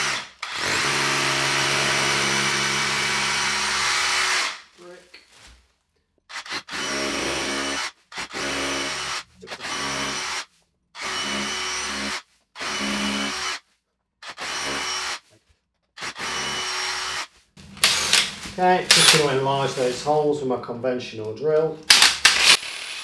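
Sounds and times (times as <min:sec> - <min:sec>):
hammer drill boring into brick: 0:00.0 - 0:04.6, 0:21.9 - 0:23.0.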